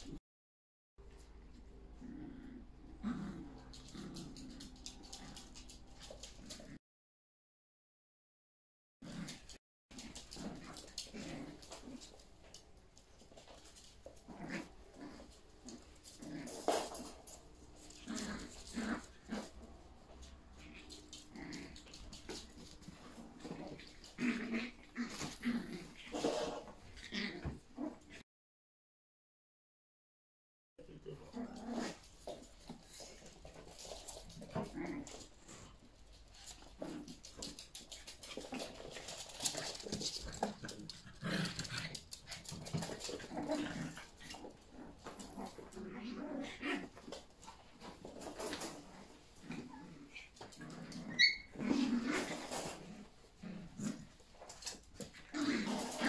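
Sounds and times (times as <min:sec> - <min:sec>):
puppies yipping and whining: 0:51.1 - 0:51.6.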